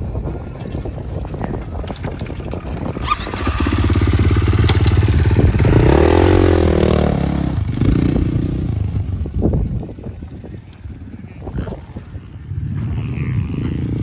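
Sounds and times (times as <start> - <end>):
motocross bike engine revving: 2.8 - 9.1, 11.4 - 14.0.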